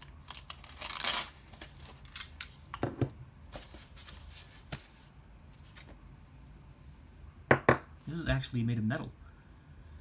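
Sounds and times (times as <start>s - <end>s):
packaging rustling: 0.0s - 2.6s.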